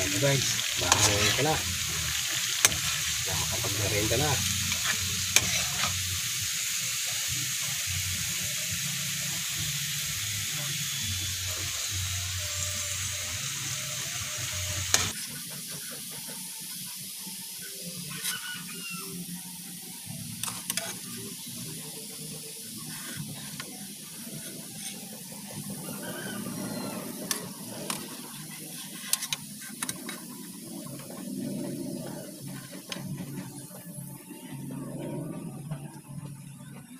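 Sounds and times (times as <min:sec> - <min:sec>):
metal spatula scraping a pan: 0:00.0 - 0:06.4, 0:14.9 - 0:15.8
bananas sizzling in hot oil: 0:00.0 - 0:34.9.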